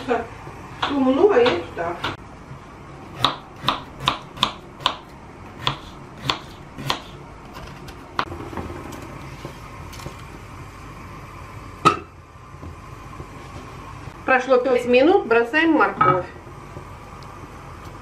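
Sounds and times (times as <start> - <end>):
knife chopping on wooden board: 3.2 - 5.0, 5.6 - 7.2.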